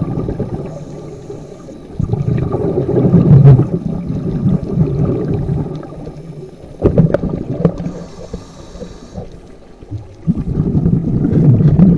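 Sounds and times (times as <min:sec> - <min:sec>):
air bubbles gurgling underwater: 0:00.0 - 0:11.9.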